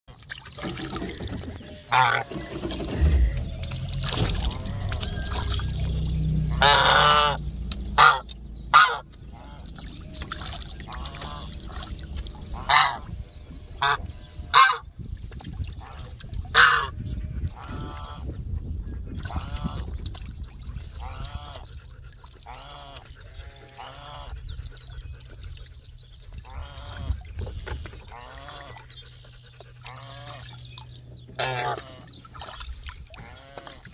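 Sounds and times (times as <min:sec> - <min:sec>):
goose honking: 0:01.6 - 0:05.6, 0:06.5 - 0:07.4, 0:08.0 - 0:11.8, 0:12.4 - 0:14.9, 0:15.8 - 0:18.3, 0:21.0 - 0:21.7, 0:22.4 - 0:24.4, 0:26.4 - 0:27.2, 0:28.0 - 0:28.9, 0:29.8 - 0:30.5, 0:31.4 - 0:32.1.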